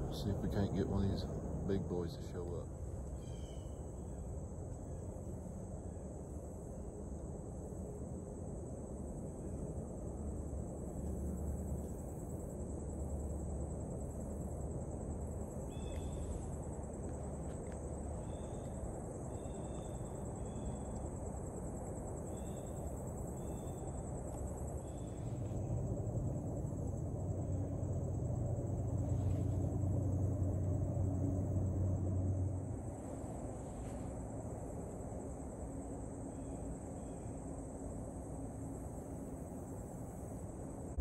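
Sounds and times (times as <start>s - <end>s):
insect chorus drone: 0.0s - 41.0s
low rumble: 25.0s - 35.0s.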